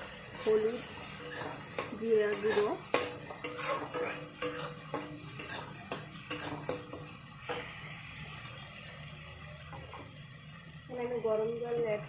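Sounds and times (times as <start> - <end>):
spatula scraping metal pan: 0.0 - 7.7.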